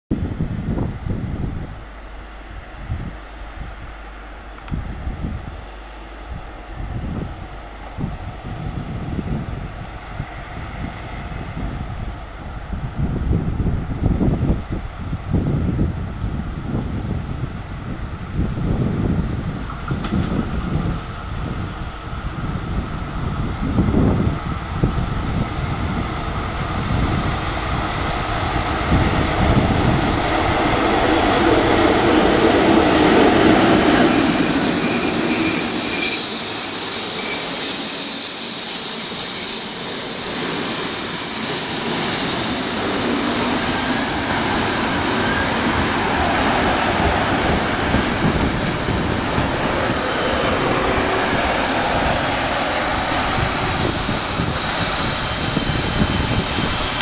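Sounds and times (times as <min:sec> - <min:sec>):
electric train passing: 0:00.2 - 0:57.0
high-pitched wheel squeal: 0:15.4 - 0:57.0.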